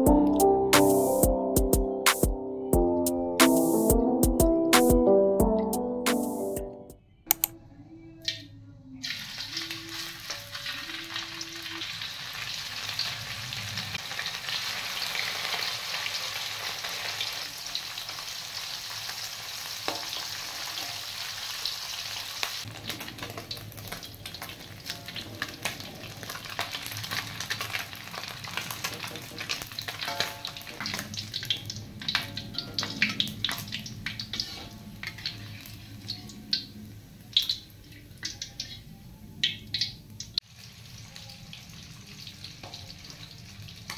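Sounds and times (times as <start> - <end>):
fish frying in hot oil: 9.0 - 38.8, 39.4 - 43.9
metal utensils scraping a wok: 22.8 - 36.2.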